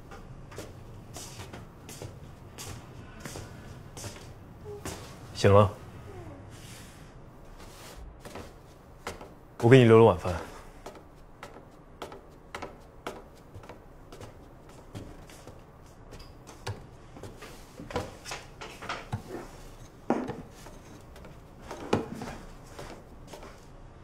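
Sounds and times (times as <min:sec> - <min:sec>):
chair and tableware knocking: 0:17.9 - 0:23.0.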